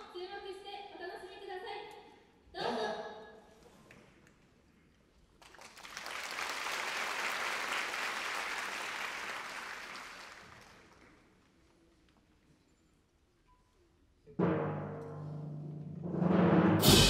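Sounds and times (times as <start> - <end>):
audience applauding: 5.4 - 11.3.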